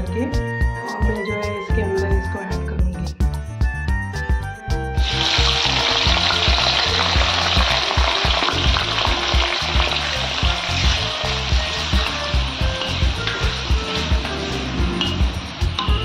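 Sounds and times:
background music with steady beat: 0:00.0 - 0:16.0
vegetables sizzling in hot oil: 0:05.0 - 0:16.0.

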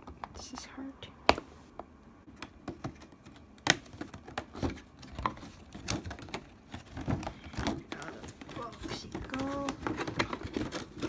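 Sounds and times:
plastic film crackling: 0:05.6 - 0:11.0.

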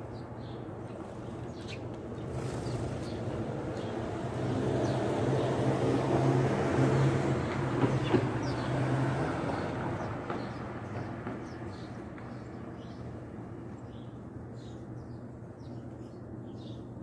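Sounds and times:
vehicle engine passing: 0:02.2 - 0:10.1.

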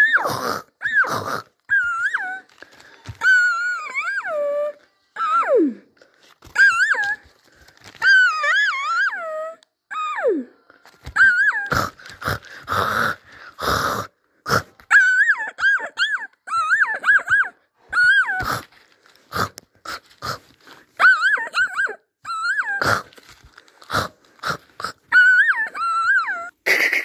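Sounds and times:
paper crumpling and crinkling: 0:01.1 - 0:04.2, 0:06.0 - 0:08.6, 0:10.8 - 0:13.5, 0:18.1 - 0:21.0, 0:22.6 - 0:25.8.

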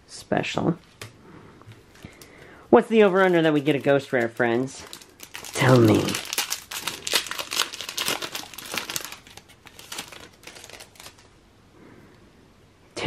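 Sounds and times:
foil wrapper crinkling: 0:02.9 - 0:11.4.

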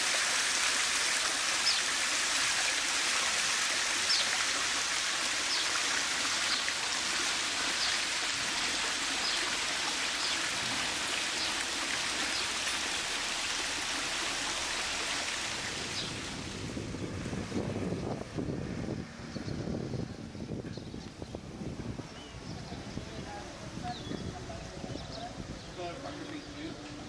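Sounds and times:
waterfall pouring into pool: 0:00.0 - 0:16.9.

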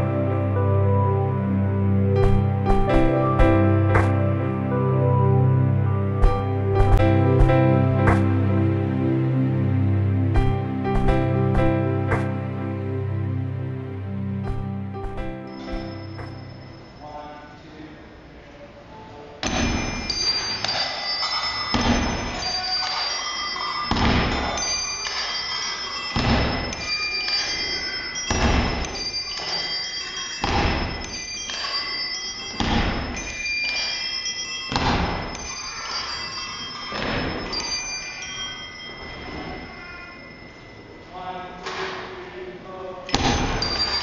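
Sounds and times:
heavy thumping beat: 0:06.2 - 0:08.3, 0:10.4 - 0:12.3, 0:14.5 - 0:15.8
bicycle bells ringing: 0:15.5 - 0:17.4, 0:19.4 - 0:41.3, 0:43.1 - 0:44.0.

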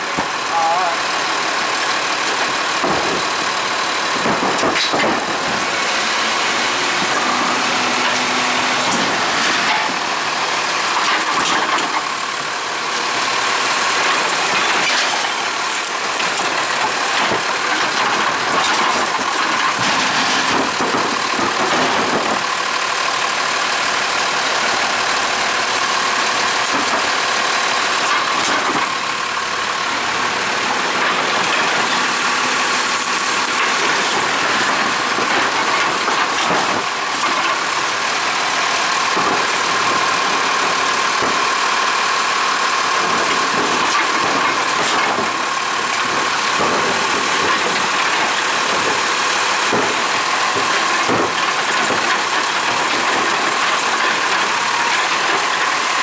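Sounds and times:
garbage truck engine running: 0:00.0 - 0:56.0
knocks and clatters of bin: 0:04.1 - 0:05.5, 0:17.2 - 0:22.5.

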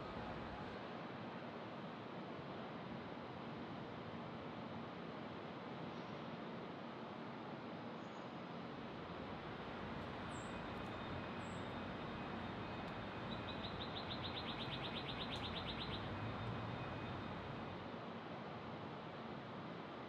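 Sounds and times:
distant traffic hum: 0:00.0 - 0:01.2, 0:08.8 - 0:18.1.

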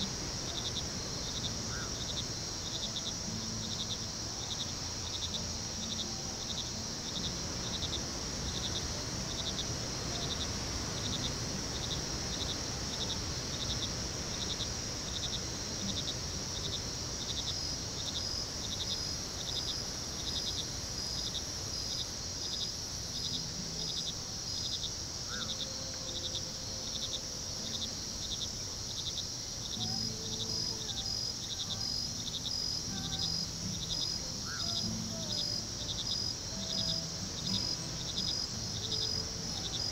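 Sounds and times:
crickets chirping steady trill: 0:00.0 - 0:39.9
faster-pulsing cricket chirp: 0:00.0 - 0:39.9.

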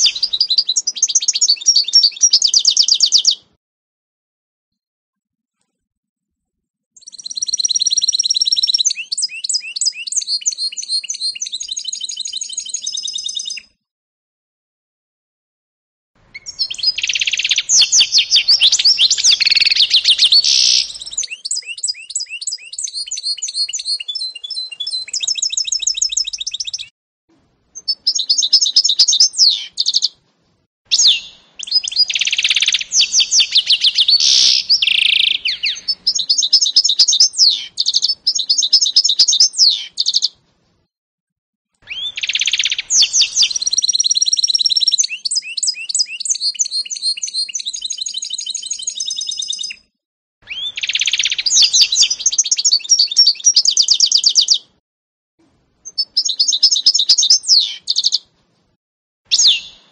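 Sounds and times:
finch singing trills and chirps: 0:00.0 - 0:03.4, 0:07.0 - 0:13.7, 0:16.3 - 0:26.9, 0:27.8 - 0:30.1, 0:30.9 - 0:40.3, 0:41.9 - 0:54.6, 0:55.8 - 0:58.2.

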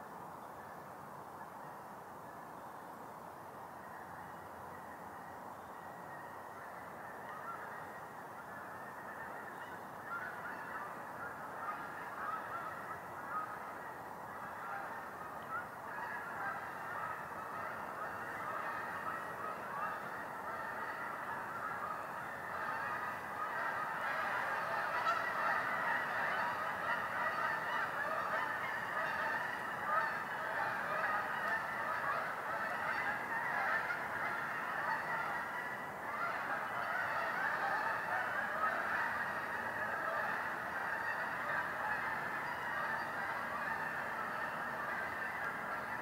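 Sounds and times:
chorus of honking animal calls: 0:14.4 - 0:46.0.

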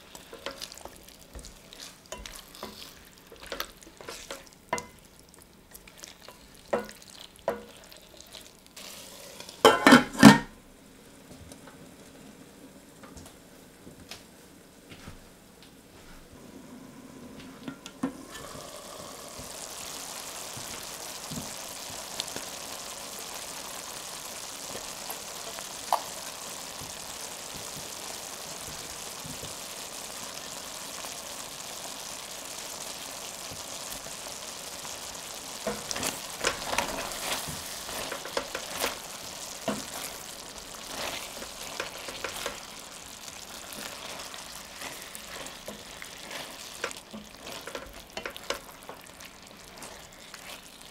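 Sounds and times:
food sizzling in a pan: 0:00.0 - 0:15.0, 0:15.9 - 0:50.9
spatula scraping a pan: 0:00.1 - 0:05.0, 0:35.6 - 0:50.8.

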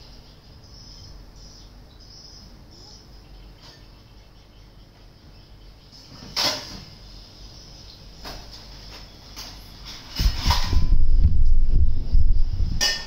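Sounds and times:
insects chirring: 0:00.0 - 0:10.1.

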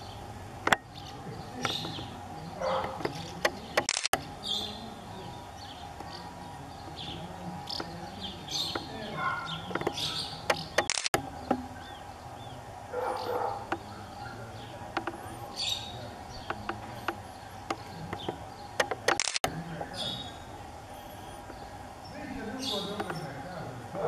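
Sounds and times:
faint steady hum: 0:00.0 - 0:24.0
small birds chirping: 0:00.0 - 0:24.0
sharp clicks: 0:00.6 - 0:02.1, 0:02.8 - 0:04.3, 0:09.6 - 0:11.6, 0:14.8 - 0:20.0.

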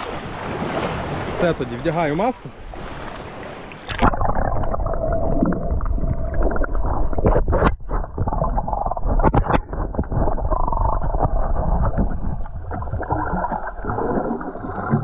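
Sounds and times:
surf and wind: 0:00.0 - 0:04.2
underwater gurgling water: 0:02.8 - 0:15.0
sharp underwater clicks and pops: 0:03.8 - 0:15.0.

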